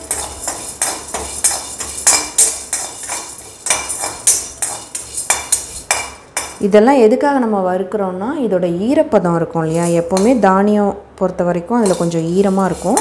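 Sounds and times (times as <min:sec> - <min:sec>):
steel ladle scraping a pan: 0:00.0 - 0:06.6, 0:09.6 - 0:10.4, 0:11.8 - 0:13.0.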